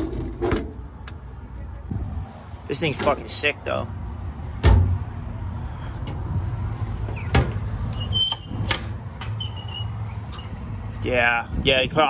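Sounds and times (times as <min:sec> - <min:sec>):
metal door clunks: 0:04.6 - 0:05.0, 0:07.2 - 0:09.3.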